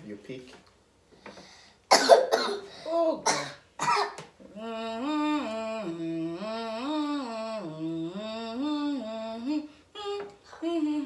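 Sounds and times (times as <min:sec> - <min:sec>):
person humming: 0:04.5 - 0:11.0.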